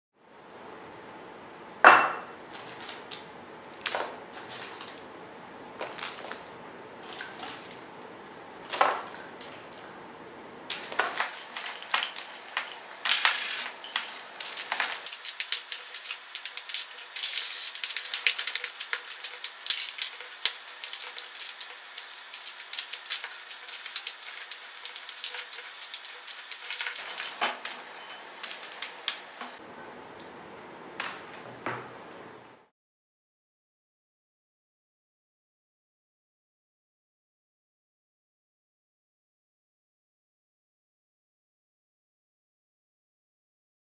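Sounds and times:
plastic wrappers crinkling: 0:02.5 - 0:05.0, 0:05.8 - 0:09.9, 0:10.7 - 0:29.6
glass jar clinks: 0:10.7 - 0:29.9.

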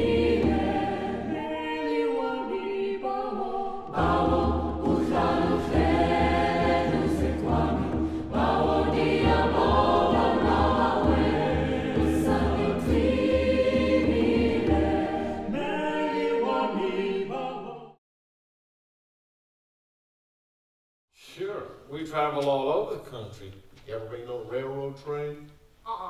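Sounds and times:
mixed choir singing in harmony: 0:00.0 - 0:18.0
hand drum low beat: 0:04.0 - 0:15.0.

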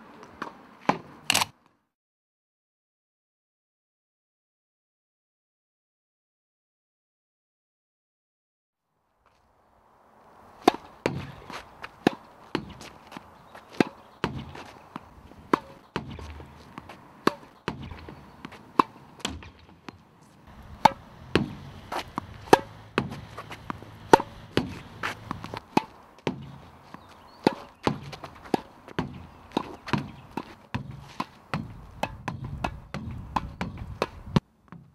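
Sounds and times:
racket hitting tennis ball: 0:00.2 - 0:01.5, 0:10.6 - 0:34.9
ball bouncing on court: 0:10.6 - 0:34.9.

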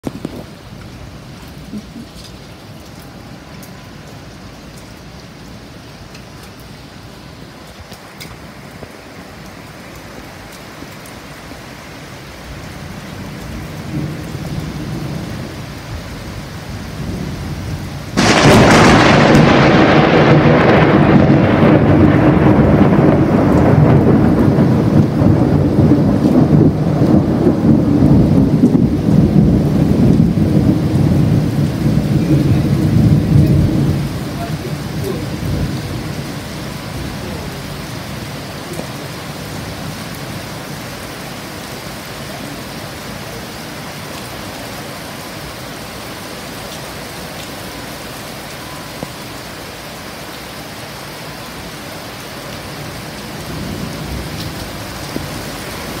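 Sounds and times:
heavy rain falling: 0:00.0 - 0:56.0
low rumble of thunder: 0:12.6 - 0:41.0, 0:52.8 - 0:56.0
loud thunderclap: 0:17.0 - 0:39.0.

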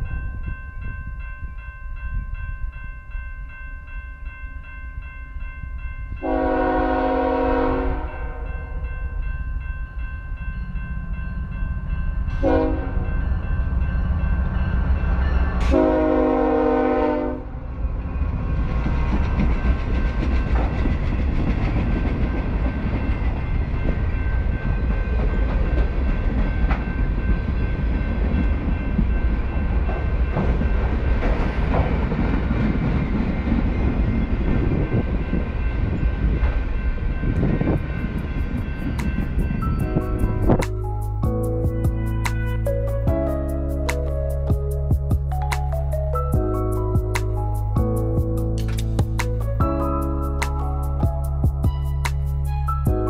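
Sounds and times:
train wheels rumbling on rails: 0:06.1 - 0:53.0
diesel locomotive horn: 0:06.2 - 0:08.8, 0:12.4 - 0:13.2, 0:15.6 - 0:17.6, 0:41.9 - 0:43.7
locomotive engine rumble: 0:10.7 - 0:53.0
train cars knocking and clanking: 0:18.7 - 0:53.0.

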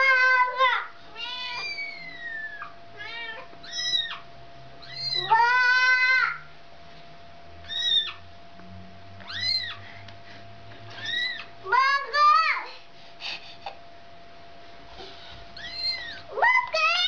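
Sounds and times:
cat meowing: 0:01.1 - 0:04.2, 0:04.8 - 0:06.4, 0:07.6 - 0:08.2, 0:09.2 - 0:09.8, 0:11.0 - 0:11.5, 0:15.6 - 0:17.0.

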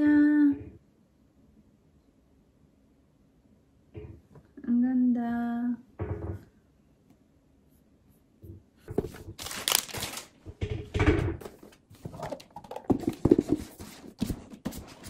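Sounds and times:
laptop and cardboard box handled: 0:08.9 - 0:10.4, 0:11.4 - 0:15.0.

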